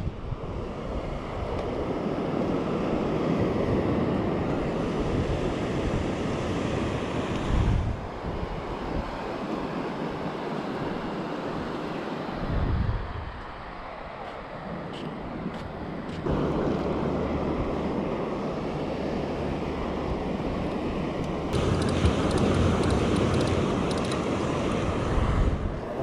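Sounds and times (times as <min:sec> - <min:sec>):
wind rumbling on microphone: 0:00.0 - 0:10.2, 0:12.3 - 0:26.0
surf washing onto beach: 0:21.5 - 0:26.0.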